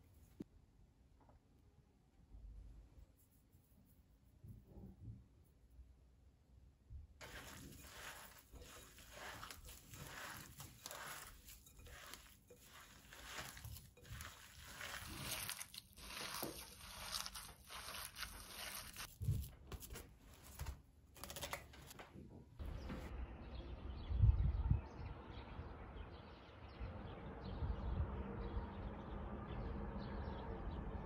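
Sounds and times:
hands kneading meat mixture: 7.2s - 21.5s
cling film crinkling and tearing: 7.2s - 22.0s.

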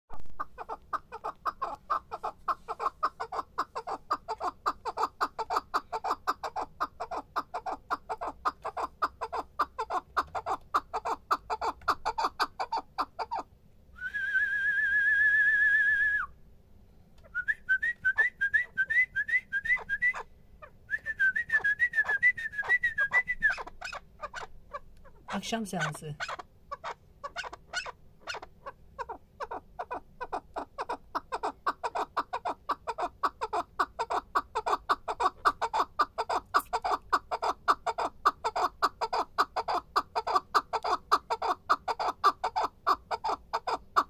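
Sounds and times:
partridge chuck calls: 0.4s - 13.5s, 22.6s - 44.0s
warbling whistle: 14.0s - 16.3s.

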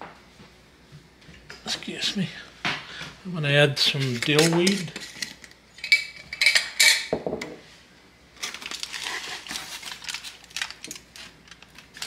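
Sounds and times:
aluminium foil crinkling: 8.4s - 12.0s.

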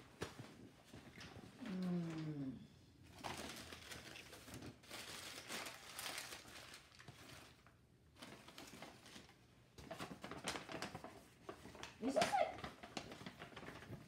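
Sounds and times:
packaging tearing and crinkling: 3.1s - 11.2s.

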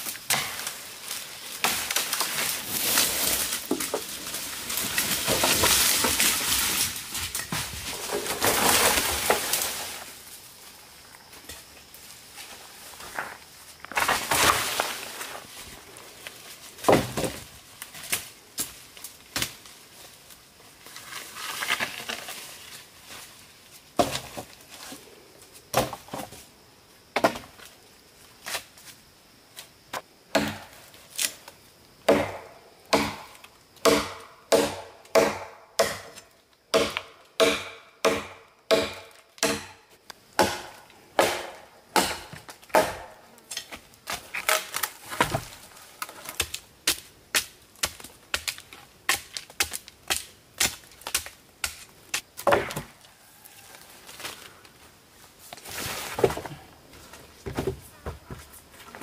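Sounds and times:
blade chopping on wood: 32.1s - 39.8s, 40.4s - 43.1s.

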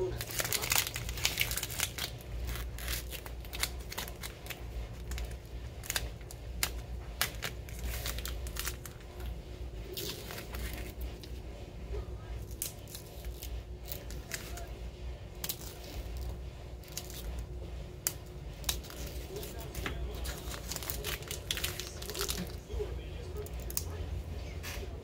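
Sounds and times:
vinyl scraps crinkling: 0.0s - 11.5s, 12.4s - 14.8s, 15.4s - 23.8s.

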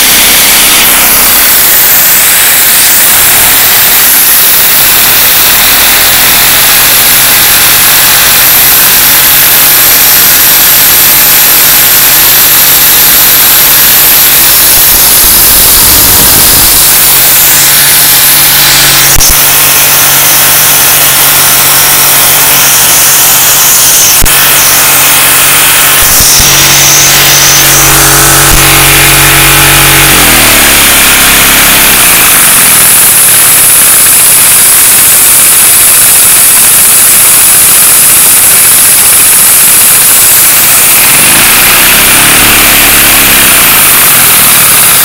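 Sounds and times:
vacuum cleaner running: 14.3s - 45.0s.

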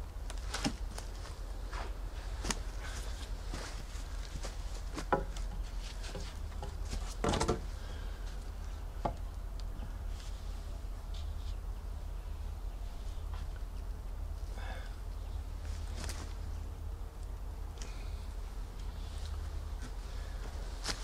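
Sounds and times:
log clunking onto wooden poles: 0.3s - 9.9s
wooden knocks: 5.0s - 7.6s.

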